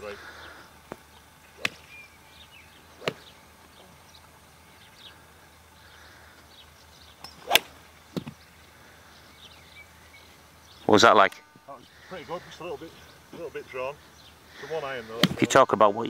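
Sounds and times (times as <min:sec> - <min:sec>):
golf club striking ball: 0:01.6 - 0:02.0, 0:03.0 - 0:03.3, 0:07.2 - 0:08.4.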